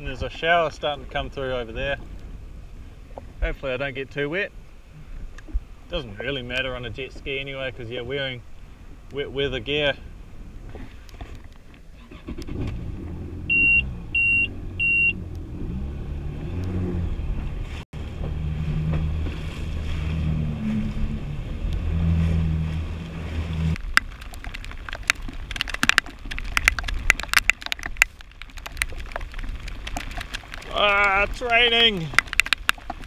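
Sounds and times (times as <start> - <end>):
short electronic beeps: 13.5 - 15.2
jet ski engine running: 16.7 - 23.8
raindrops striking near microphone: 18.0 - 33.0.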